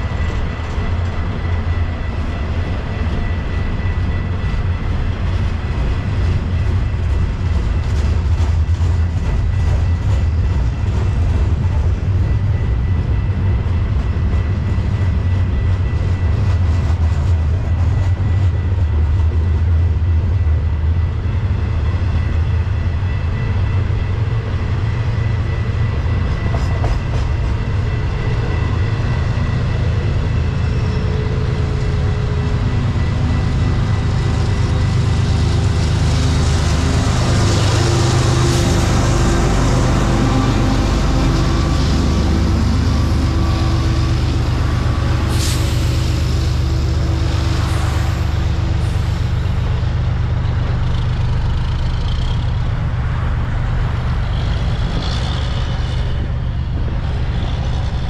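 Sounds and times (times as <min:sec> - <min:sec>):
diesel trucks idling: 0:32.7 - 0:55.9.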